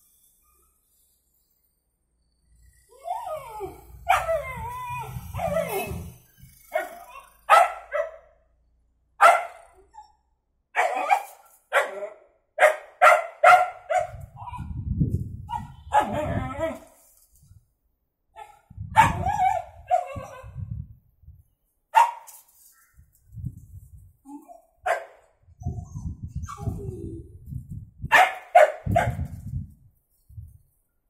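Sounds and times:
puppy drawn-out wavering calls: 2.9 - 6.2
puppy barking: 4.1 - 4.5, 6.8 - 8.4, 9.2 - 9.8, 10.8 - 14.7, 15.5 - 16.4, 18.4 - 20.5, 22.0 - 22.3, 24.9 - 25.2, 28.1 - 29.2.

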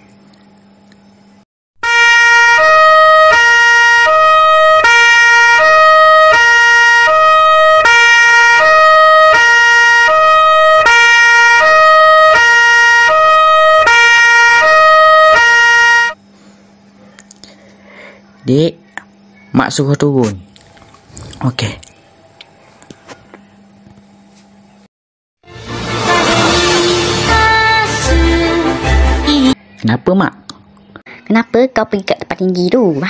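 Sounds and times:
two-tone fire engine siren: 1.8 - 16.2.

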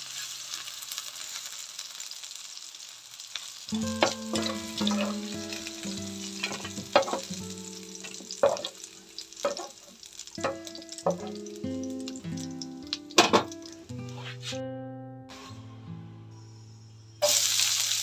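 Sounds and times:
oil sizzling in a wok: 0.0 - 14.6, 16.4 - 18.0
soft background music: 3.7 - 9.6, 10.4 - 17.6.

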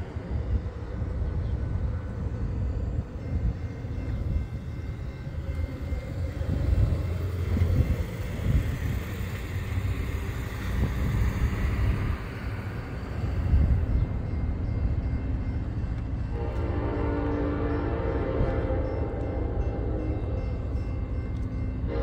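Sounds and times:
road traffic rumble: 0.0 - 17.3.

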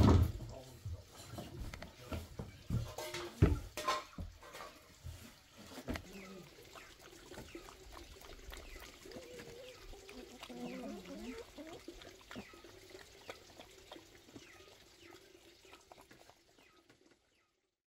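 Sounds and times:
dog lapping from metal bowl: 1.6 - 17.3
small birds chirping: 4.1 - 17.8.

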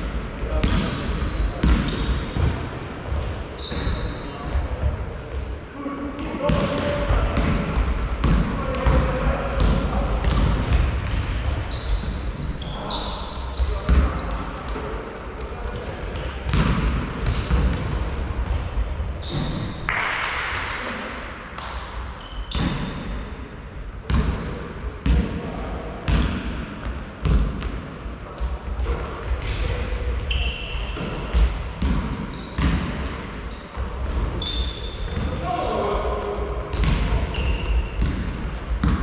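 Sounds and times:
sneaker squeaks: 0.5 - 10.4, 11.0 - 15.0, 15.7 - 17.8, 19.1 - 20.1, 22.2 - 23.2, 28.8 - 35.4, 36.7 - 39.0
basketball bouncing on floor: 6.5 - 11.6, 16.1 - 18.7, 31.0 - 33.0, 36.7 - 37.1, 38.8 - 39.0.

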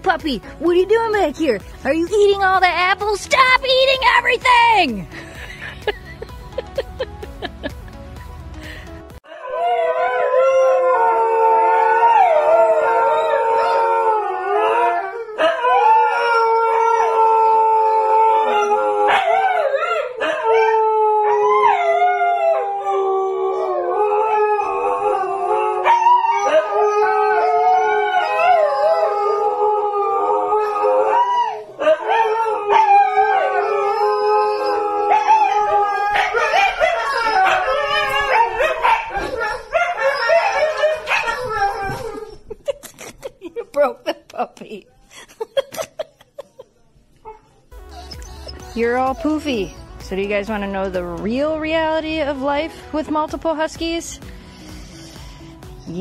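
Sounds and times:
dogs howling: 9.3 - 42.6, 47.3 - 50.0.

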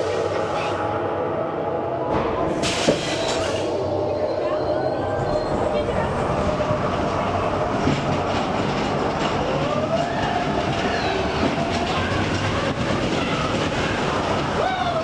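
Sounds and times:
roller coaster rumble and clatter: 0.0 - 15.0
roller coaster wheels squealing: 9.6 - 15.0.

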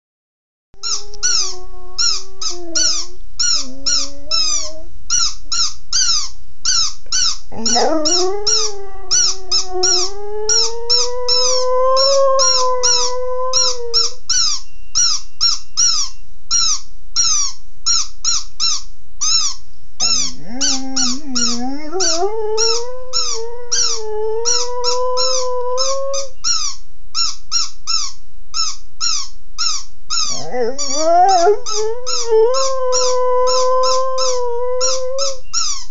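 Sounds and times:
dog howling: 0.8 - 4.9, 7.5 - 14.3, 20.3 - 26.4, 30.2 - 35.7
squeaky dog toy: 0.8 - 35.9.

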